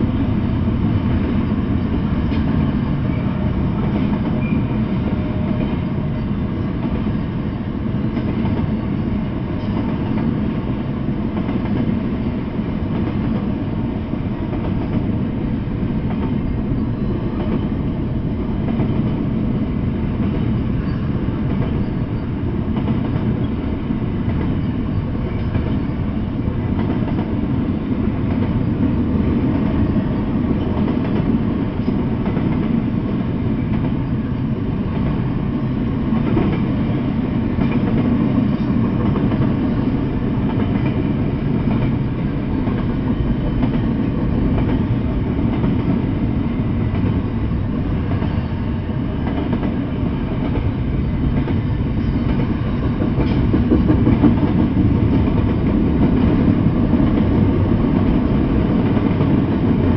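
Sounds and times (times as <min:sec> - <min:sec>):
train rumbling past: 0:00.0 - 0:59.9.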